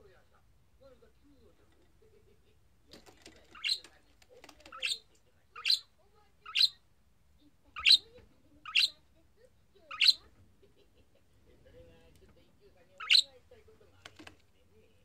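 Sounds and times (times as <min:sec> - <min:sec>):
budgerigar chirping: 0:03.5 - 0:03.9, 0:04.6 - 0:05.0, 0:05.6 - 0:06.8, 0:07.8 - 0:09.0, 0:09.8 - 0:10.3, 0:13.0 - 0:13.4.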